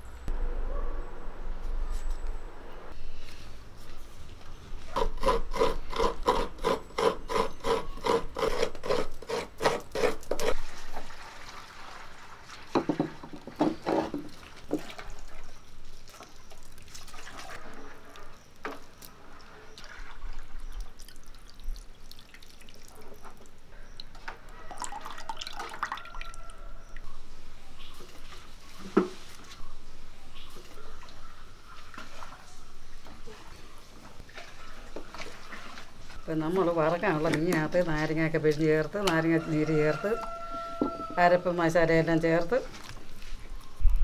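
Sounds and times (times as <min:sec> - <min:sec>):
coconut scraping on a grater: 0:04.9 - 0:10.9
liquid trickling into a pot: 0:10.6 - 0:13.4, 0:19.3 - 0:26.6.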